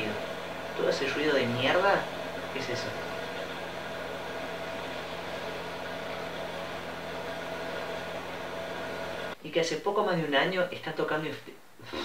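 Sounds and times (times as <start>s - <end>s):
electric fan running: 0.0s - 9.4s.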